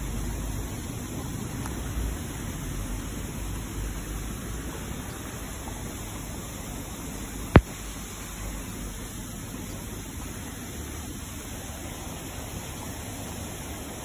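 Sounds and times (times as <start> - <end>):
sharp click: 7.6 - 7.8.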